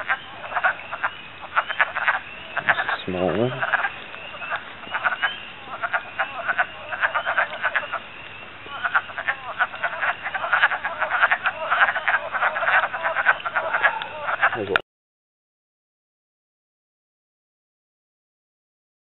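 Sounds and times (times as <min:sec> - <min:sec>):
frogs croaking chorus: 0:00.0 - 0:14.8.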